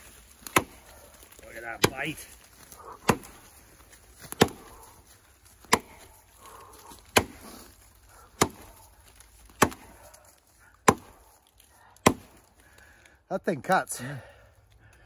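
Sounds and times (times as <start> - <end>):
axe chopping log: 0.3 - 3.5, 4.2 - 4.8, 5.6 - 6.1, 7.0 - 10.1, 10.8 - 12.5.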